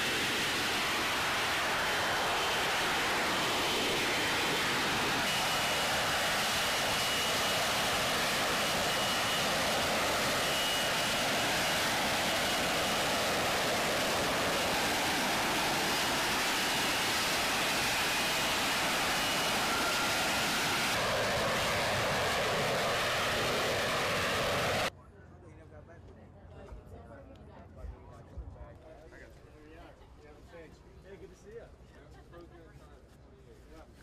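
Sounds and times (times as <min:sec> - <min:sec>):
jet engine roar: 0:00.0 - 0:24.9
thin high whine: 0:00.0 - 0:24.9.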